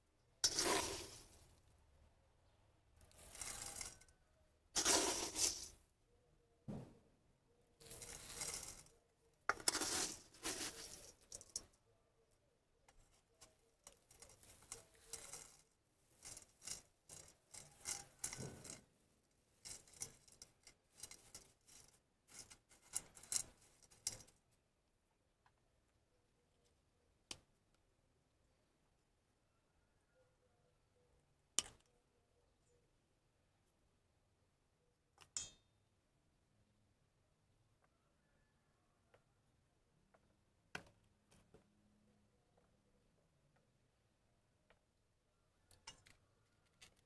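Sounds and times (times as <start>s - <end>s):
grit scraping and rattling: 0.4s - 1.6s, 3.0s - 4.2s, 4.8s - 5.8s, 7.8s - 11.8s, 12.9s - 24.5s.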